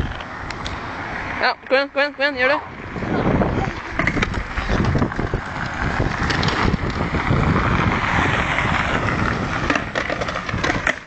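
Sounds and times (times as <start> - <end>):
skateboard wheels on pavement: 0.0 - 11.0
wind on microphone: 2.6 - 11.0.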